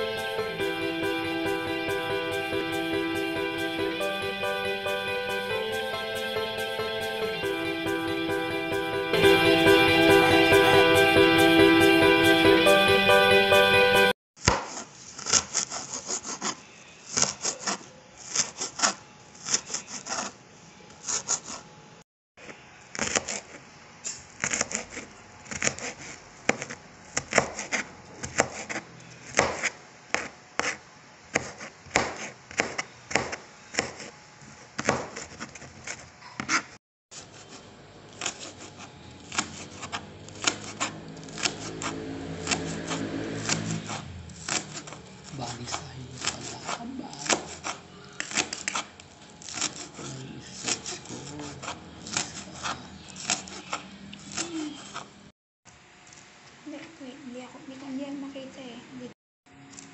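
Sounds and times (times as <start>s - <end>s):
knife chopping on cutting board: 14.4s - 20.3s, 24.4s - 34.1s, 34.8s - 50.0s, 50.6s - 55.1s.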